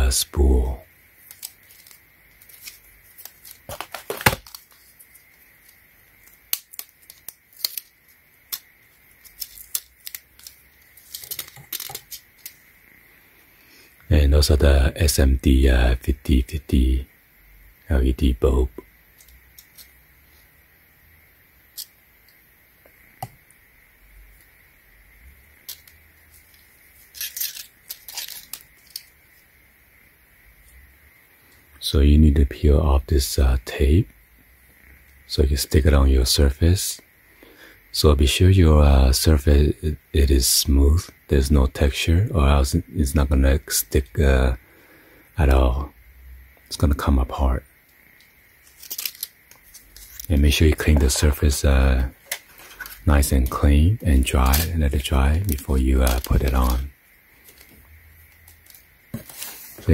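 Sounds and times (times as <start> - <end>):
tape peeling: 1.2 - 12.6, 25.7 - 29.2, 48.6 - 50.3, 54.4 - 54.7
plastic reel rustling and scraping: 1.3 - 4.9, 52.2 - 53.0, 58.4 - 59.9.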